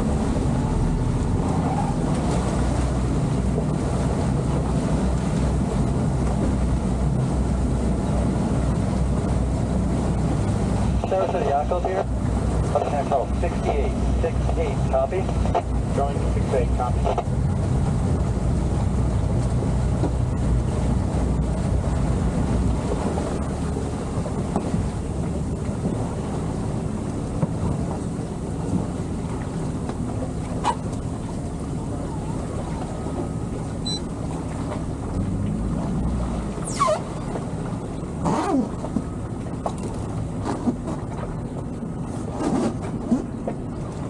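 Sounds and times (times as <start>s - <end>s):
outboard engine drone: 0.0s - 44.0s
water churning: 0.0s - 44.0s
wind buffeting microphone: 0.0s - 44.0s
brief squeaks: 33.8s - 34.1s, 36.6s - 37.2s.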